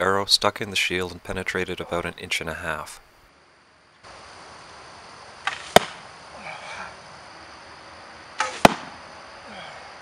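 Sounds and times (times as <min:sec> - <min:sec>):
arrows thudding into shield: 0:05.4 - 0:06.0, 0:08.4 - 0:09.0.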